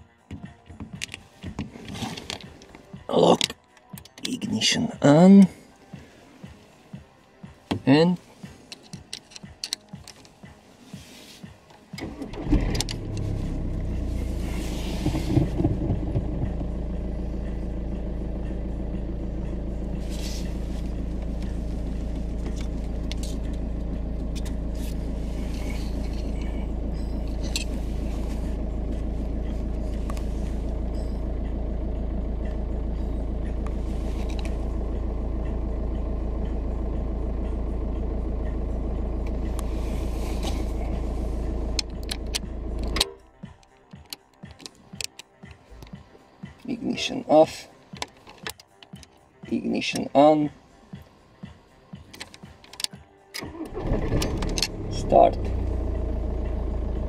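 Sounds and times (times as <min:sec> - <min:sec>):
car engine starting and idling: 0:00.8 - 0:57.0
rustling: 0:13.3 - 0:16.6, 0:20.0 - 0:30.8.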